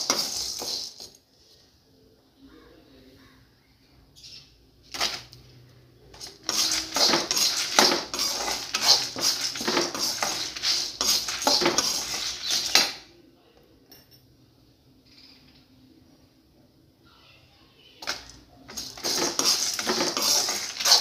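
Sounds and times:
spoon scraping iron pan: 6.2s - 12.9s, 18.7s - 21.0s.

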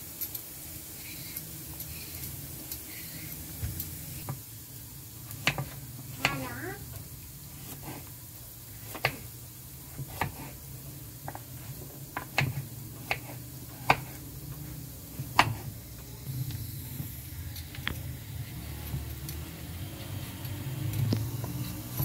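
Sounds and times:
knife chopping on wooden board: 5.4s - 6.4s, 8.8s - 9.3s, 9.9s - 10.6s, 11.2s - 14.2s, 15.2s - 15.7s.

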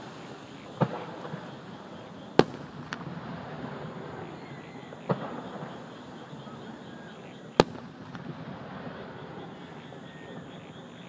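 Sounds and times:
insects and frogs chorus: 0.0s - 11.0s
firework shells bursting: 2.3s - 4.2s, 7.6s - 9.7s.

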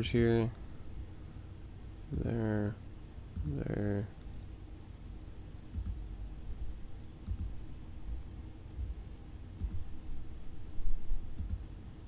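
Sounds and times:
low steady rumble: 0.0s - 12.0s
computer mouse clicking: 3.3s - 3.6s, 5.7s - 6.0s, 7.2s - 7.6s, 9.6s - 9.9s, 11.4s - 11.6s.

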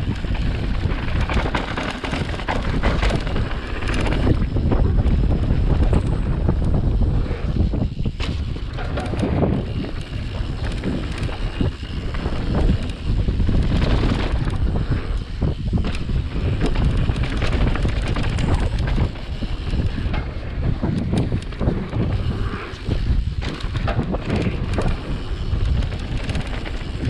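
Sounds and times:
rough uneven rumble: 0.0s - 27.0s
wind buffeting microphone: 0.0s - 27.0s.

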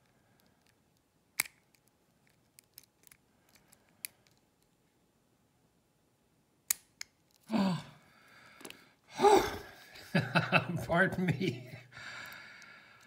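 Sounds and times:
metal clicks of lock picks: 1.4s - 4.7s.

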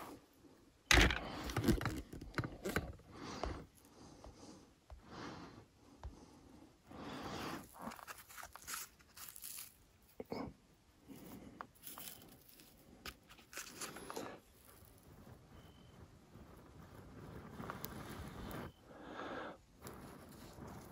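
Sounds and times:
bark tearing and crumpling: 7.7s - 10.1s, 11.8s - 15.2s.

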